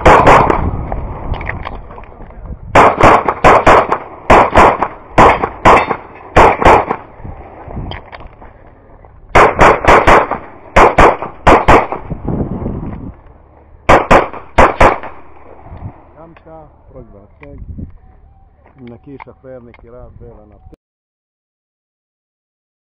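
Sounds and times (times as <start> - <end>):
pistol firing rapid shots: 0.0 - 0.6, 2.8 - 7.1, 9.4 - 12.1, 13.9 - 15.4.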